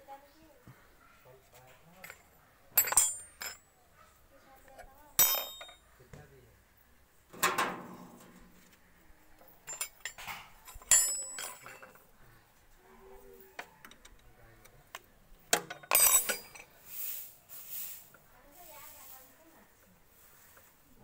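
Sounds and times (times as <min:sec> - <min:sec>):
spanners clinking on metal: 0:01.9 - 0:03.7, 0:04.7 - 0:05.8, 0:07.4 - 0:08.6, 0:09.4 - 0:12.2, 0:15.0 - 0:16.8.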